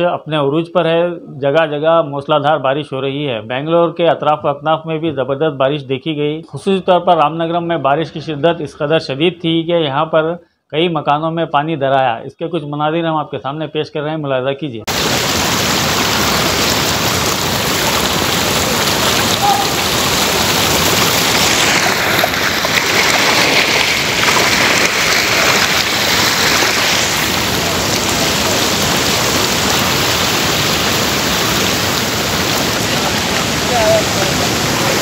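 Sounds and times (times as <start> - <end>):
floodwater rushing: 14.9 - 35.0.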